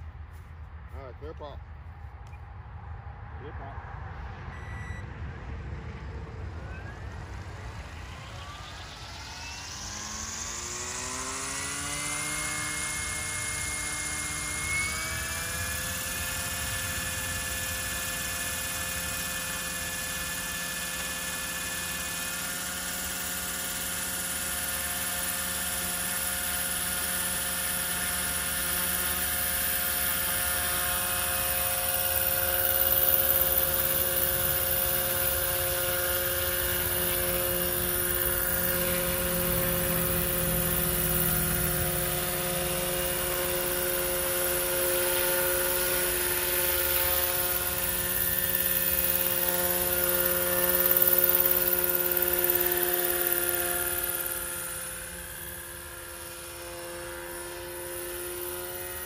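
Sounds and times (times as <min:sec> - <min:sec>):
helicopter rotors swishing: 0:05.7 - 0:59.0
electric motor whine: 0:06.2 - 0:59.0.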